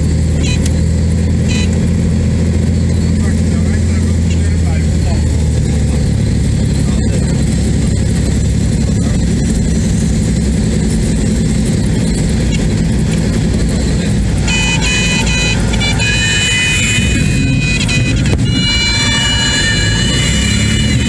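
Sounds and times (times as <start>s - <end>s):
airplane engine and propeller: 0.0s - 21.0s
stall warning horn: 0.4s - 0.8s, 1.4s - 2.0s, 13.1s - 21.0s.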